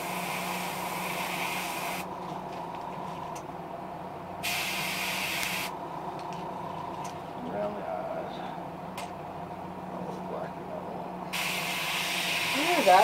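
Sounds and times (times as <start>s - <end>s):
airbrush spraying hiss: 0.0s - 2.1s, 4.4s - 5.7s, 11.4s - 13.0s.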